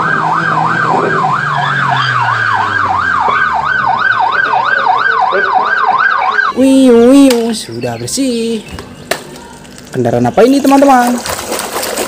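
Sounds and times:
police siren yelping: 0:00.0 - 0:07.2.

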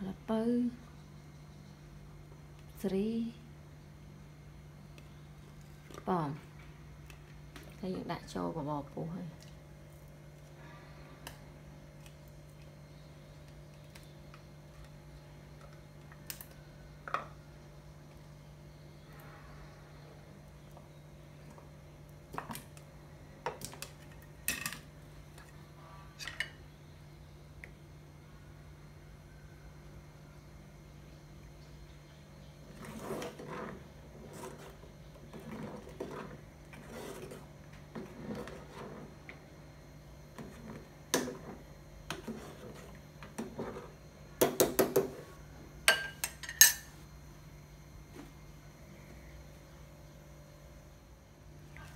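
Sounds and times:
steady low hum: 0:00.0 - 0:51.9
metal ladle scraping a pot: 0:32.7 - 0:39.1.

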